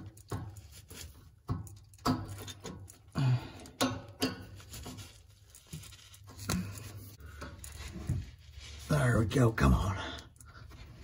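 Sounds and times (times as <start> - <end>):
rubber and pliers rubbing on metal: 0.0 - 3.1, 4.4 - 9.2.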